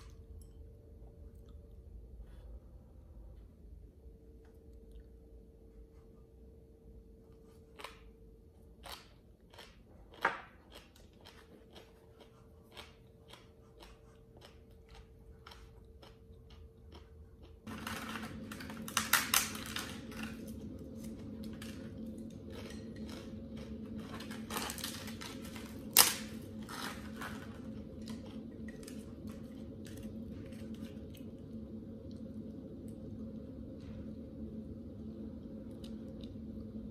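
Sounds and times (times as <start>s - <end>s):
steady low hum: 0.0s - 36.9s
chewing and crunching food: 7.4s - 33.9s
sharp crack: 25.9s - 26.4s.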